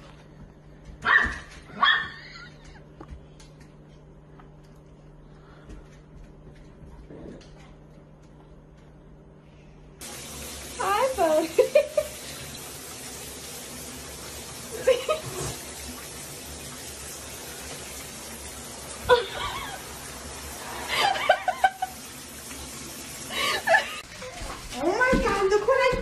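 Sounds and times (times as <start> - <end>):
shower water running: 10.0 - 26.0
person laughing softly: 19.0 - 19.9.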